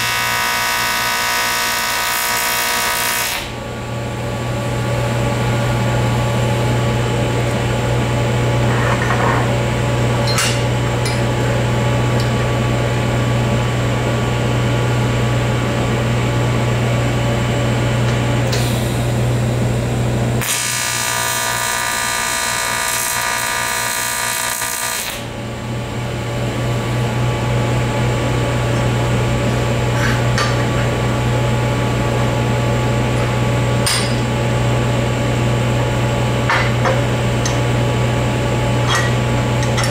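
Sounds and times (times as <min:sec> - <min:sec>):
buzzing hiss of arc welding: 0:00.0 - 0:03.6, 0:20.4 - 0:25.3
low electrical hum: 0:00.0 - 0:39.9.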